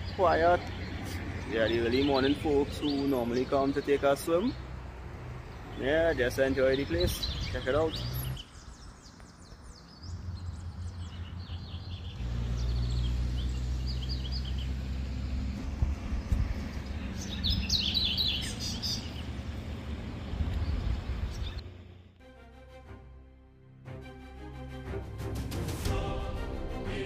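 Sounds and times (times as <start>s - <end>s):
birds chirping: 0.0s - 21.8s
steady low rumble: 15.2s - 17.7s, 19.4s - 22.2s.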